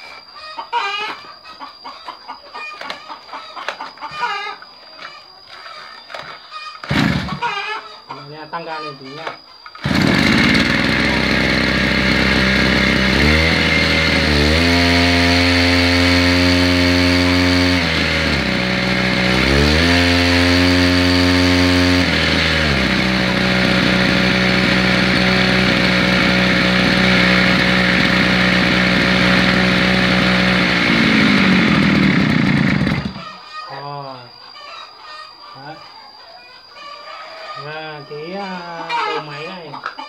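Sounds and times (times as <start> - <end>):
brush cutter engine revving: 6.8 - 7.5, 9.8 - 33.3.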